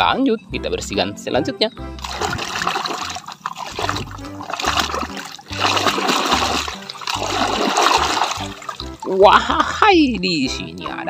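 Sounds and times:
muddy water splashing and sloshing: 1.9 - 9.4.

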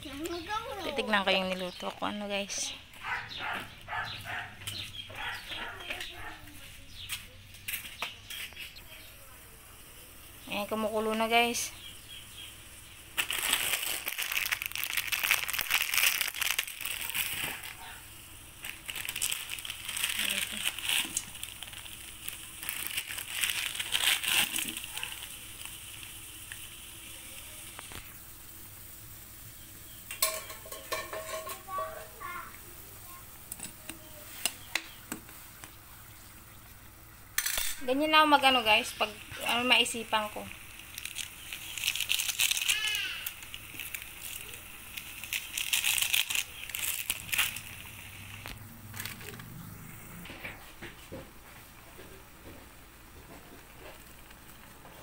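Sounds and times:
crackling rustle: 0.0 - 55.0
water boiling in a wok: 9.0 - 37.3, 38.0 - 49.4, 52.9 - 55.0
plastic sachets crinkling: 13.1 - 28.1, 38.2 - 49.8.

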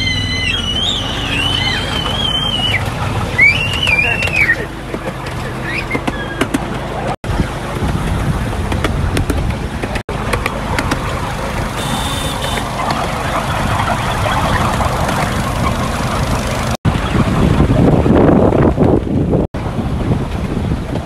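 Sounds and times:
wind on microphone: 7.2 - 21.0.

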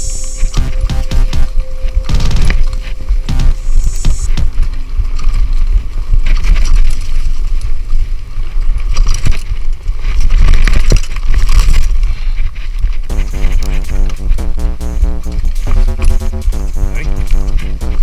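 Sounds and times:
steady buzzing tone: 0.0 - 4.7, 13.1 - 18.0
bike tyres on dirt trail: 4.5 - 13.1.

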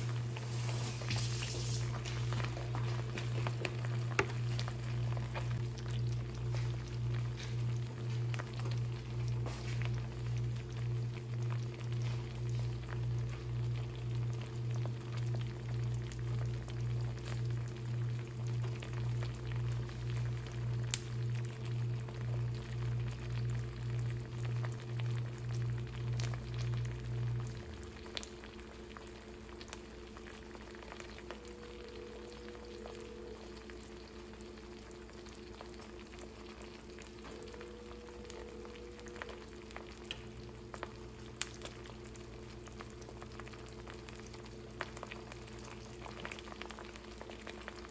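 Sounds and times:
eggs sizzling and popping in a pan: 0.0 - 47.9
pulsing low hum: 30.6 - 45.1.

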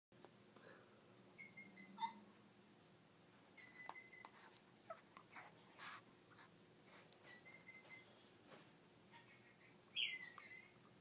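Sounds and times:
parrot whistling: 9.9 - 10.8.

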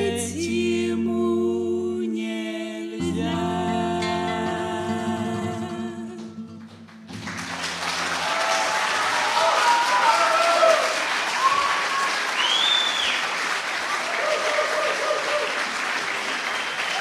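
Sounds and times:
acoustic guitar chords: 0.0 - 2.2, 3.0 - 8.2
applause: 6.2 - 17.0.

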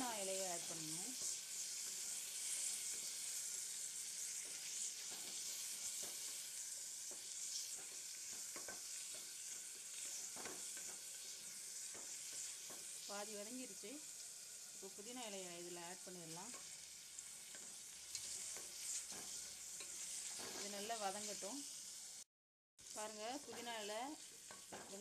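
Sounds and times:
onions sizzling in hot oil: 0.0 - 25.0
wooden spatula scraping a pot: 17.4 - 21.5.

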